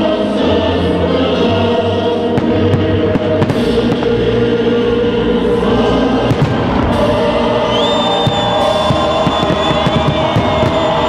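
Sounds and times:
choir-like music: 0.0 - 11.0
firework bangs: 2.3 - 4.4, 6.3 - 11.0.

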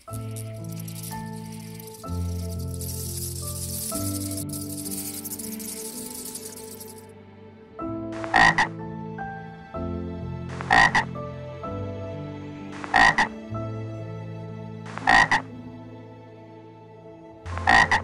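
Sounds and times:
frog double croak: 8.2 - 8.7, 10.6 - 11.1, 12.8 - 13.3, 15.0 - 15.5, 17.5 - 18.0.

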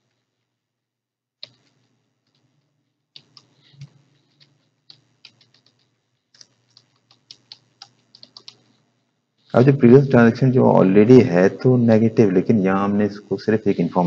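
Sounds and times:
keyboard keys clicking: 1.4 - 2.5, 3.2 - 8.6.

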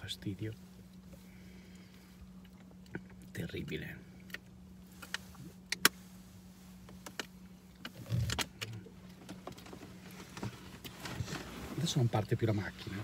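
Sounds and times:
steady low hum: 0.0 - 13.0
clicks and taps in car cabin: 6.8 - 11.4.

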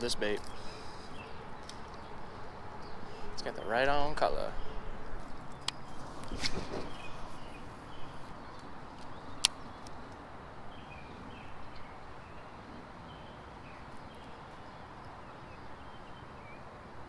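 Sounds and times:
outdoor background noise: 0.0 - 17.0
brief rustle: 5.2 - 7.5.

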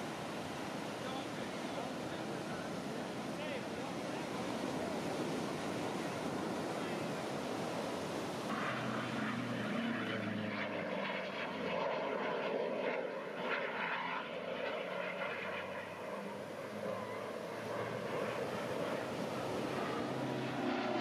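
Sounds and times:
steady noisy background: 0.0 - 10.5
airplane engine flying past: 0.0 - 21.0.

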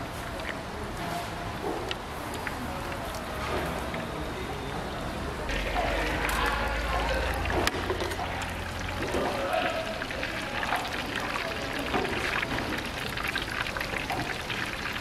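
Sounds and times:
oil sizzling and crackling: 5.5 - 15.0.

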